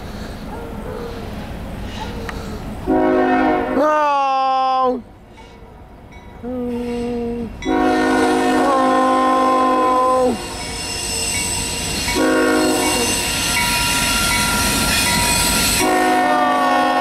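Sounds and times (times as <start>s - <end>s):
train rumble: 0.0s - 17.0s
locomotive air horn blasts: 2.9s - 4.0s, 6.8s - 10.6s, 12.0s - 13.3s, 15.7s - 17.0s.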